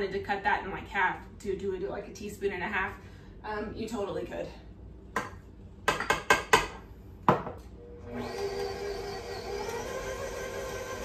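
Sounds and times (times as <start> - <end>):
electric stand mixer whirring: 7.8 - 11.0.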